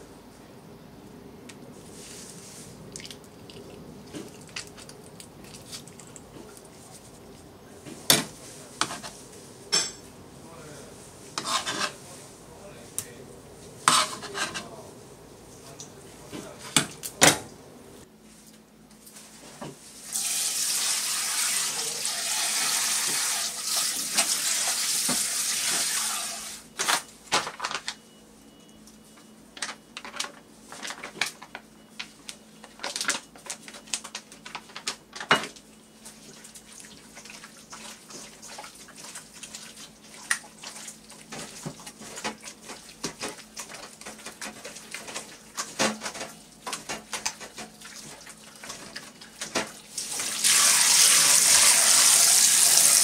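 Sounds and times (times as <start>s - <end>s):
wet squelches: 2.8s - 6.7s, 36.0s - 45.6s
tap water running into bowl: 20.1s - 26.5s, 49.5s - 53.0s.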